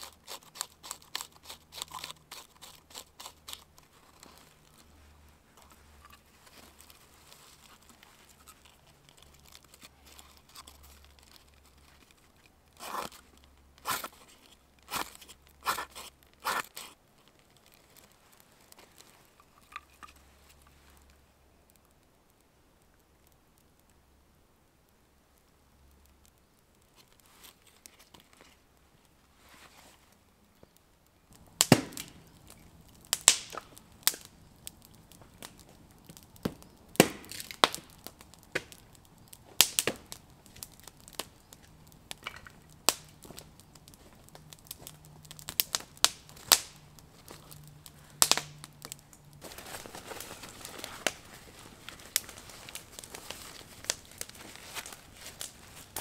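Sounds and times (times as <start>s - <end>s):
campfire crackling and popping: 0.0s - 56.0s
nylon sack rustling: 49.4s - 56.0s.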